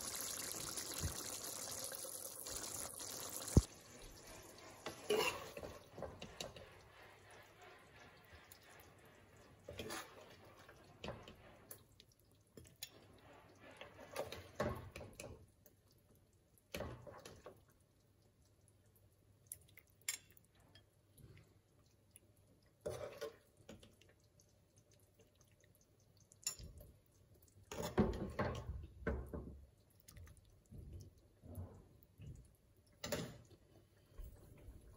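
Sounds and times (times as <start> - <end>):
ladle scraping a pan: 3.5 - 11.7, 12.9 - 14.7, 22.8 - 23.4.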